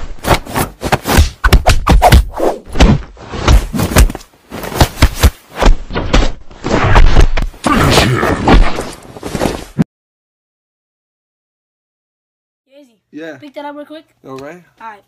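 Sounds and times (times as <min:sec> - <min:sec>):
punch and kick hits: 0:00.2 - 0:09.0.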